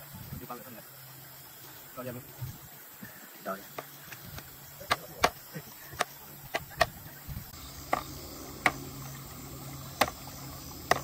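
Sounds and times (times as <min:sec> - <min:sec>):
cleaver chopping on cutting board: 0:10.0 - 0:10.2.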